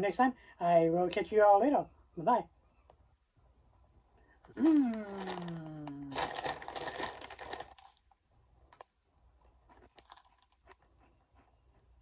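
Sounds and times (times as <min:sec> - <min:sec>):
crunchy snacks being chewed: 0:04.4 - 0:12.0
foil snack bag crinkling: 0:04.6 - 0:11.5.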